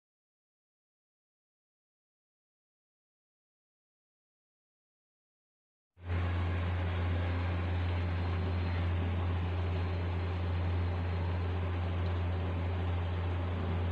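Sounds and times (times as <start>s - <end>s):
steady low hum: 6.0s - 13.9s.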